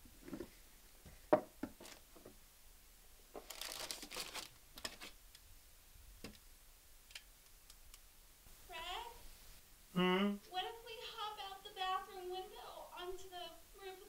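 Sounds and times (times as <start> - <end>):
plastic bag crinkling: 1.8 - 2.1, 3.4 - 5.2.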